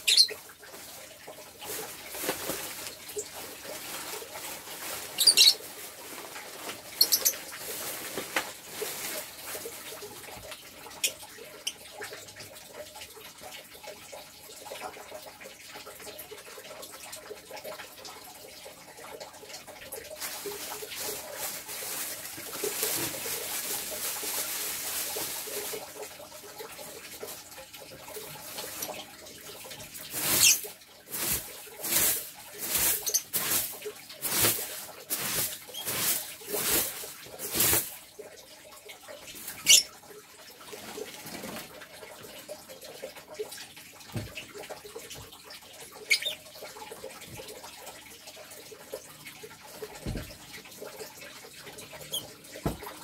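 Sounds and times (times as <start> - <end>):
lovebirds chirping: 0.0 - 0.4, 5.2 - 5.6
wing flutters and rustling: 0.0 - 10.4, 20.2 - 26.1, 30.0 - 38.0.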